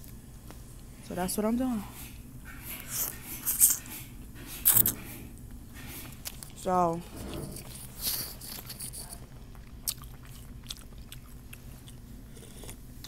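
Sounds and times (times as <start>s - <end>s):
person chewing: 4.6s - 4.9s, 6.1s - 6.6s, 7.5s - 13.0s.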